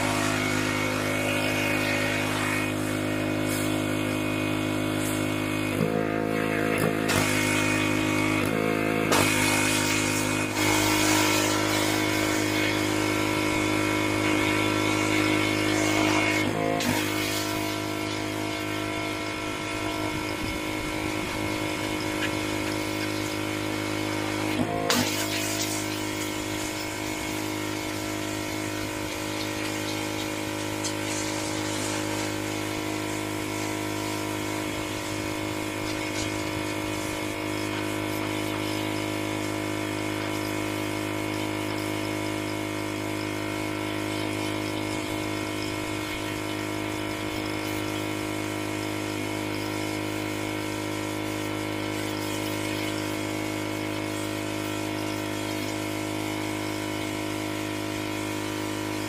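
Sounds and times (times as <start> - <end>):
water jet spraying: 0.0 - 40.7
pressure washer machine hum: 0.0 - 59.0.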